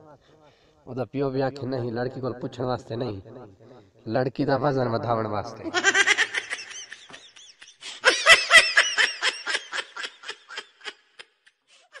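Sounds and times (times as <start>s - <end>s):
high-pitched laughter: 5.6s - 12.0s.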